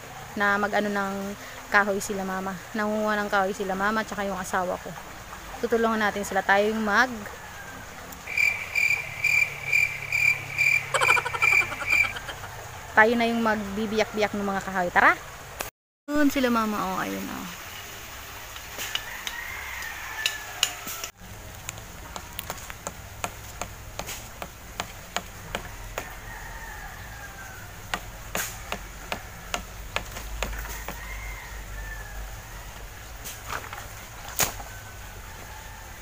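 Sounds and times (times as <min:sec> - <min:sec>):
stick knocking on firewood: 0:22.1 - 0:26.1, 0:27.8 - 0:31.0.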